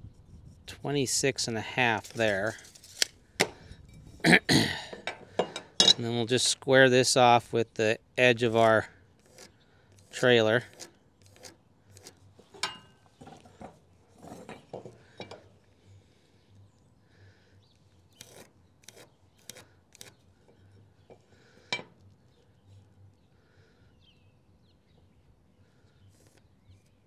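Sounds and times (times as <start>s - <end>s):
pencil scratching along metal: 8.6s - 12.6s, 18.2s - 20.2s.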